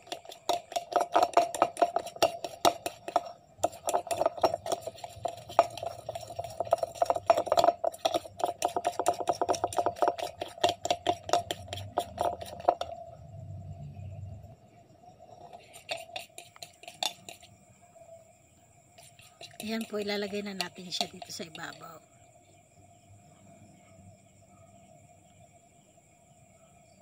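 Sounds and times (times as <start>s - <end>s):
spoon scraping ceramic bowl: 0.0s - 13.0s, 15.3s - 17.5s, 19.0s - 21.9s.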